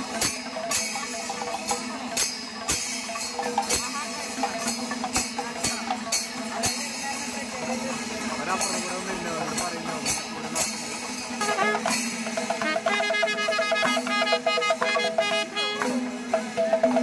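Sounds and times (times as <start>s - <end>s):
crowd voices: 0.0s - 17.0s
jingling hand cymbals: 0.0s - 17.0s
sharp drum strokes: 0.0s - 17.0s.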